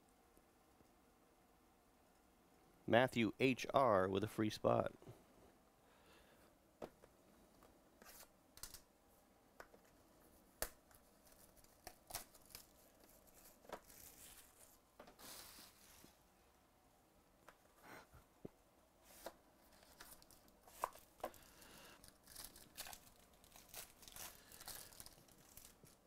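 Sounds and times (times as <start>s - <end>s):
plastic shrink-wrap tearing and crinkling: 11.3s - 14.6s, 22.0s - 26.0s.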